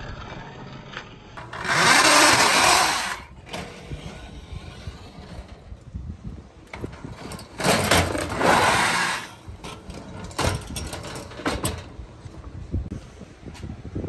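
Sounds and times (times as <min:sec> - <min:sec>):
toy truck wheels rattling: 0:01.4 - 0:05.8, 0:06.7 - 0:11.9.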